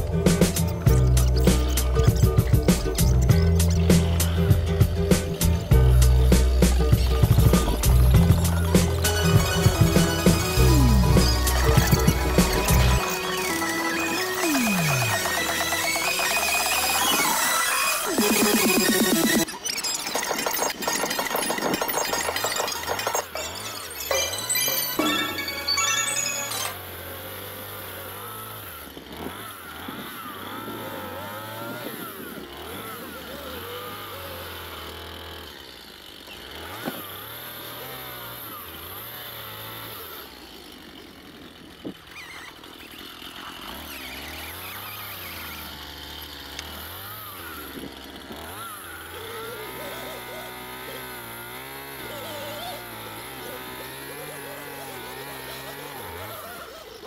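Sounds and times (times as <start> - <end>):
vehicle engine humming: 0.0 - 19.8.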